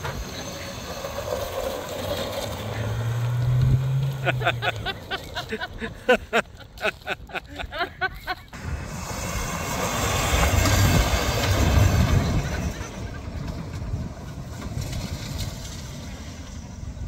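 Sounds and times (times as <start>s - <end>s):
van engine revving: 0.0s - 6.2s
tyres on gravel: 0.0s - 17.0s.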